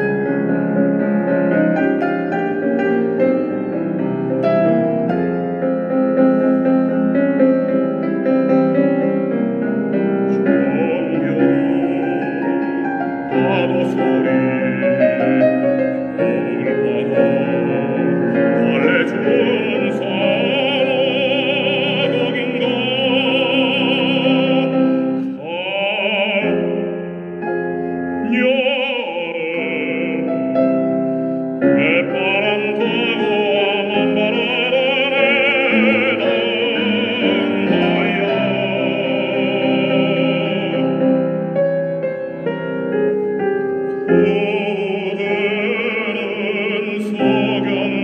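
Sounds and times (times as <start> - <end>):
instrumental accompaniment: 0.0 - 48.0
man singing operatically: 9.2 - 42.6, 44.0 - 48.0.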